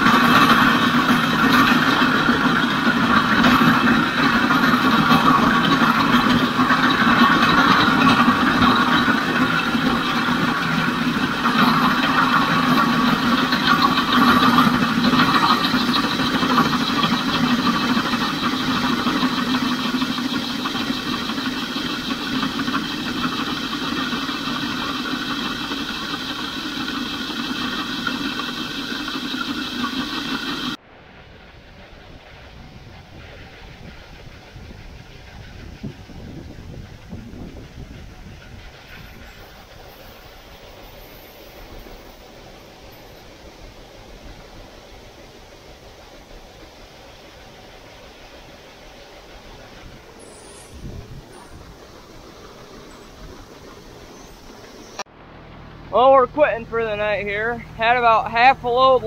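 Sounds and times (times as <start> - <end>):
grain auger running: 0.0 - 30.8.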